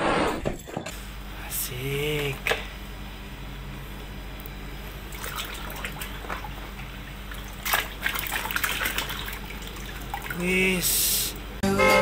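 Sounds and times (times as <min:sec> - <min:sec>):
water splashing and sloshing: 0:05.1 - 0:10.8.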